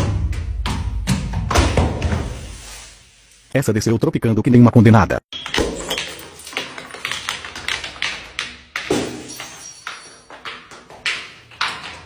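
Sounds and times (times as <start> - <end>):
glass bottles crashing on stone: 5.4 - 11.2.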